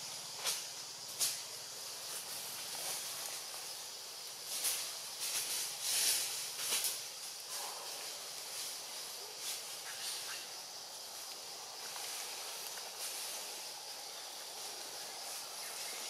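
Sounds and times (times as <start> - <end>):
leaves rustling: 0.0 - 16.0
steady high hiss: 0.0 - 16.0.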